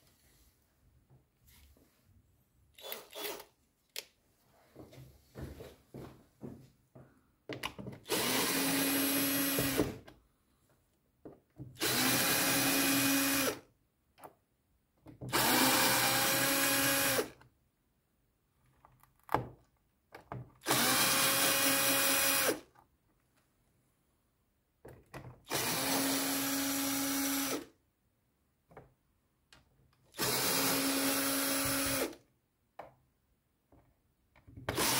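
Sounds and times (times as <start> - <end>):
cordless drill motor whine: 2.8 - 3.5, 8.1 - 9.9, 11.8 - 13.6, 15.3 - 17.3, 20.6 - 22.6, 25.5 - 27.7, 30.2 - 32.2.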